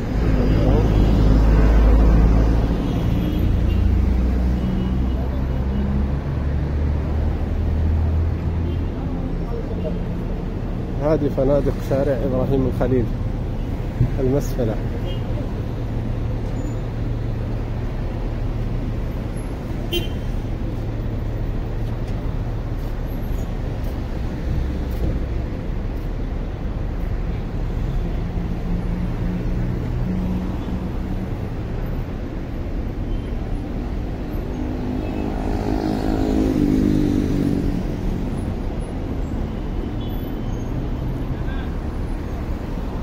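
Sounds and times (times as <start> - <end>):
traffic rumble: 0.0 - 43.0.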